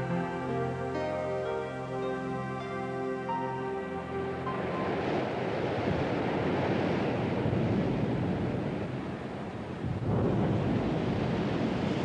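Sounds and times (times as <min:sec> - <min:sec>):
waves breaking on rocky shore: 0:04.3 - 0:12.0.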